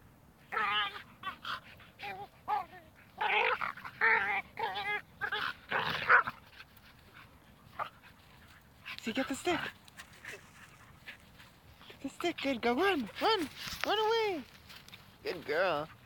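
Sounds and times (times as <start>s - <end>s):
dog whining and yipping: 0.5s - 5.5s.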